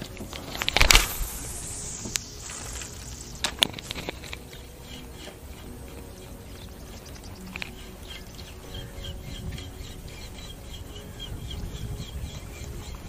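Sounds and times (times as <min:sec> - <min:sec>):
fishing rod swish and rattle: 0:00.0 - 0:05.7
line hissing off reel: 0:00.0 - 0:05.8
sharp reel clicks: 0:00.3 - 0:05.6.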